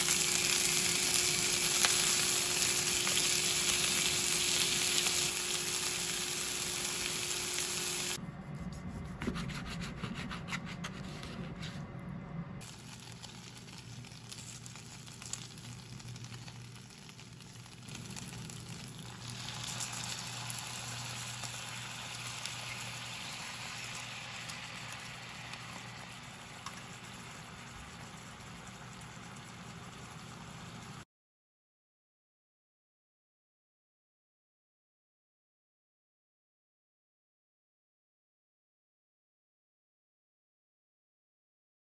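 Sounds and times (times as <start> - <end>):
chicken sizzling in a pan: 0.0 - 8.2, 12.6 - 31.0.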